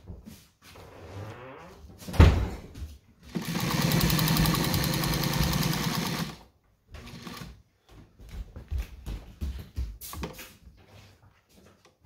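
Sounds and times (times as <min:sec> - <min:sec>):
sewing machine stitching leather: 0:03.3 - 0:07.6.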